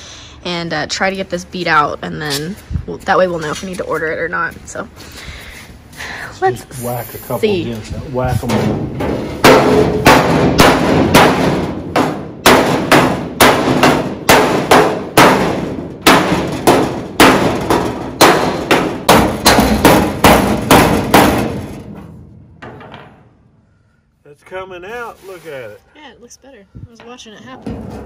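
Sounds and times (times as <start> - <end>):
hammer striking sheet metal: 8.4 - 23.7.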